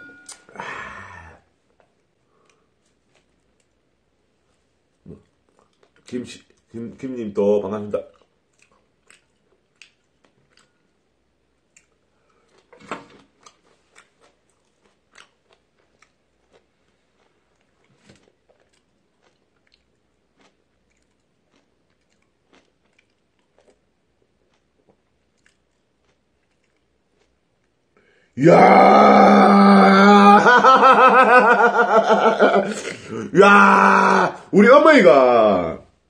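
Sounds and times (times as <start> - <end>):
man chewing noodles: 1.6 - 3.9, 5.1 - 6.7, 8.0 - 30.3.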